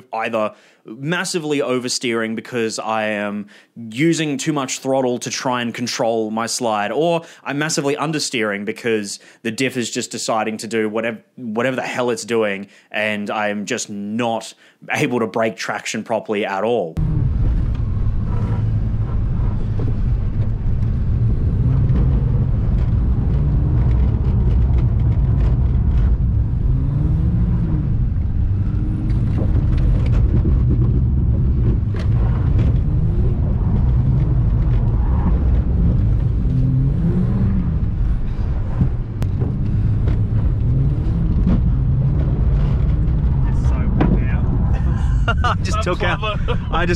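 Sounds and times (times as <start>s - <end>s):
car engine revving: 17.0s - 46.9s
low drone: 17.0s - 46.9s.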